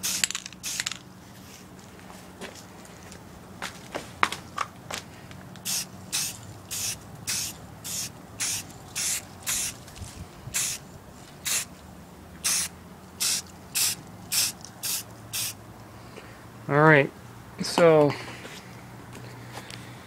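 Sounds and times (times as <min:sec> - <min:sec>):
spray paint can hissing: 0:00.0 - 0:01.0, 0:05.6 - 0:09.9, 0:10.5 - 0:10.8, 0:11.4 - 0:11.7, 0:12.4 - 0:15.6.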